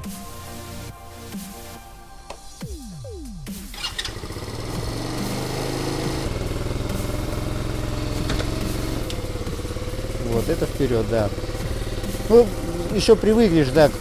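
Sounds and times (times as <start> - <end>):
quad bike engine running: 3.7 - 14.0.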